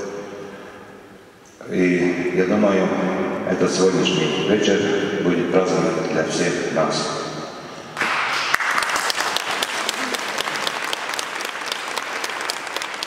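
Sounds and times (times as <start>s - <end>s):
audience applauding: 8.0s - 13.0s.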